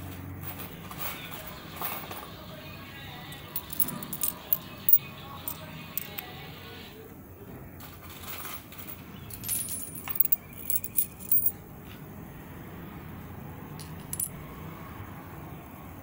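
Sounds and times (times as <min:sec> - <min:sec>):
coins clinking on hard floor: 0:03.4 - 0:06.2, 0:09.3 - 0:11.6, 0:13.8 - 0:14.3.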